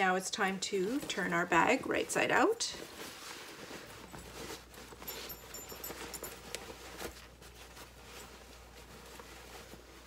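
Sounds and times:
fabric bag rustling: 0.4s - 10.0s.

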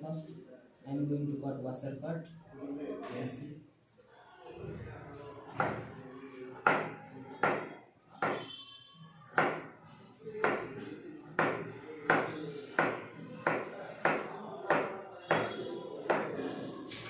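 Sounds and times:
knife chopping carrot on board: 6.7s - 8.4s, 9.4s - 9.7s, 11.4s - 15.5s.

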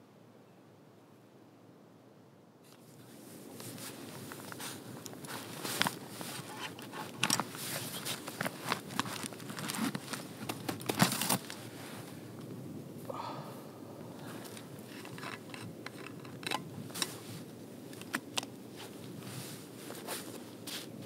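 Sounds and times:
padded jacket rustling: 3.1s - 12.1s, 18.7s - 21.0s
thermos flask clicks and crunches: 4.3s - 11.6s, 14.4s - 17.2s, 17.9s - 18.6s.

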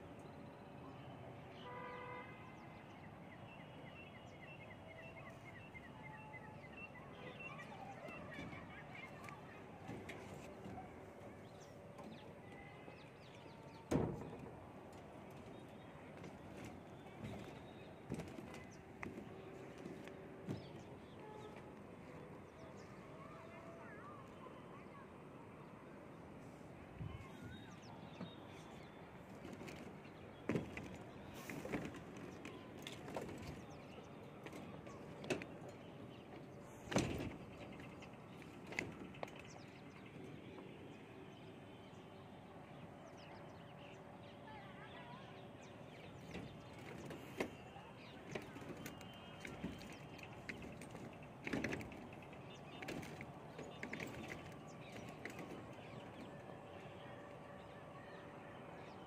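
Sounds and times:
birds calling: 26.9s - 59.0s.

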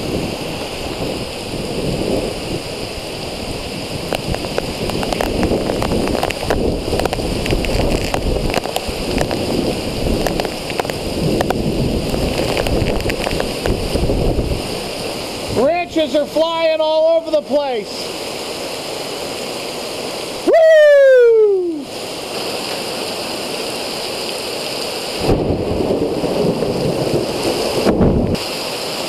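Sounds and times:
wind buffeting microphone: 0.0s - 15.6s, 25.2s - 28.4s
heavy rain: 0.0s - 29.0s
storm wind through trees: 0.0s - 29.0s.

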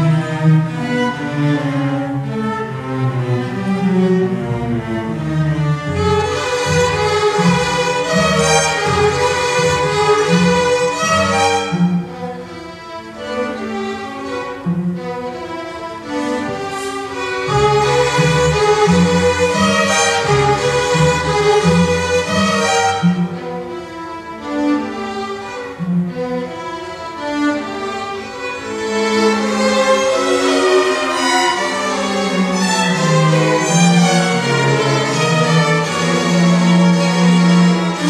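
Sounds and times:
orchestral bowed strings: 0.0s - 38.0s.

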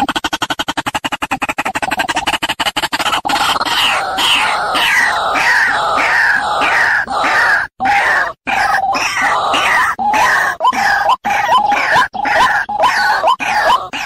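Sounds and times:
waterhen calling: 2.9s - 14.0s.

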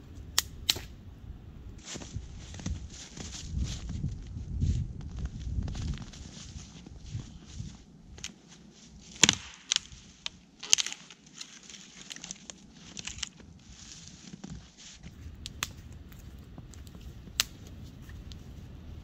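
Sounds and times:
wood branch cracking: 9.0s - 14.8s, 15.4s - 17.6s
sharp pops: 9.1s - 11.3s.

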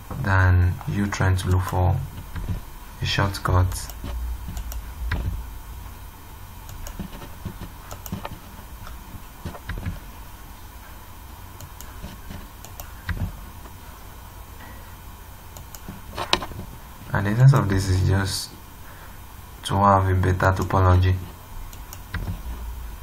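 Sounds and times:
low steady hum: 0.0s - 23.0s
mouse and keyboard clicks: 6.7s - 8.4s.

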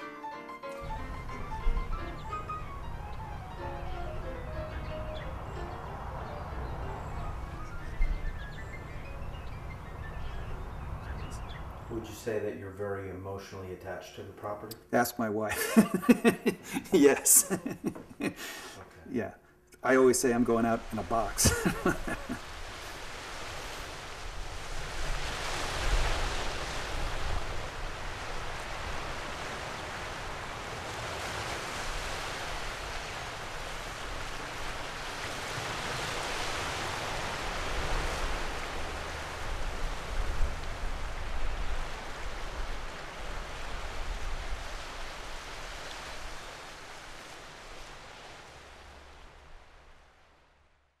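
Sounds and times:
ocean surf washing: 0.0s - 13.0s, 15.3s - 19.1s, 19.8s - 50.6s.

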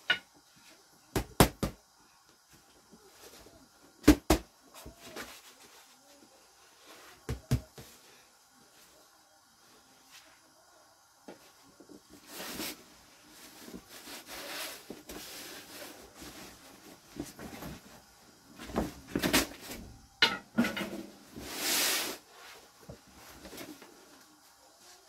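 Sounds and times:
plastic sheet and cloth rustling: 11.7s - 19.8s.

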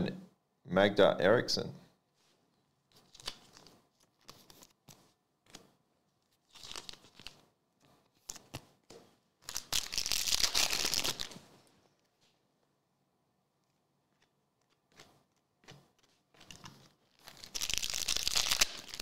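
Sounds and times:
cards being handled: 2.9s - 12.1s, 13.6s - 19.0s
wrapper tearing and crinkling: 6.4s - 7.4s, 9.4s - 11.4s, 16.4s - 19.0s.

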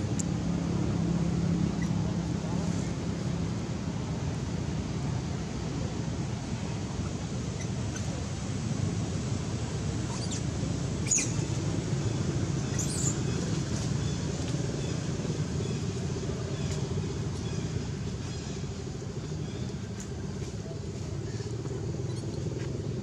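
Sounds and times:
low outdoor rumble: 0.0s - 23.0s
bird chirps: 11.0s - 11.5s.

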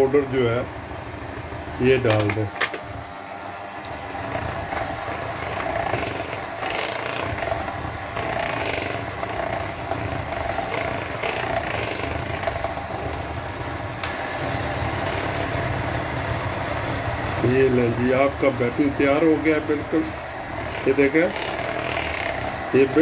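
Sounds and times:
electric hand mixer motor hum: 1.4s - 23.0s
beaters swishing through batter: 3.8s - 16.0s.

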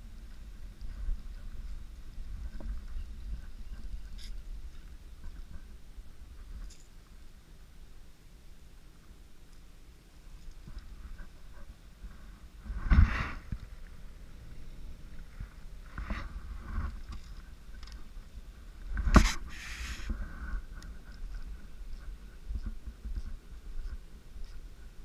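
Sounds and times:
brief hiss: 19.1s - 20.2s.

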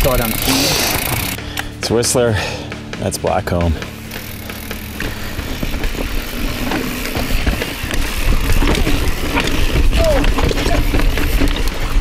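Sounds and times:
bike clattering: 0.0s - 1.8s, 3.5s - 12.0s
bike tyres rumbling over rock: 4.0s - 12.0s.

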